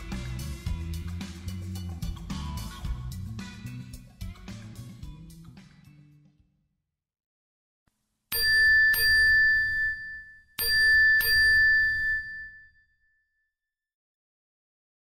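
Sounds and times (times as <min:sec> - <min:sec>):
bell-like dings: 0:08.3 - 0:13.6.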